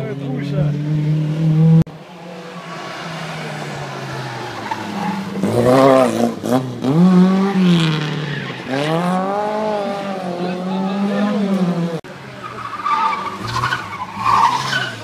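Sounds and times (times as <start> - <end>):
rally car engine revving: 0.0 - 15.0
tyre squeal: 12.4 - 15.0.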